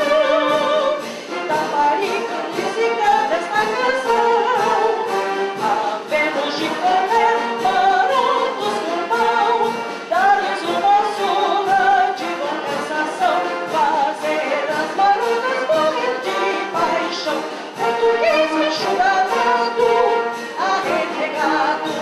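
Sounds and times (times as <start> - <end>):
woman singing a hymn: 0.0 - 22.0.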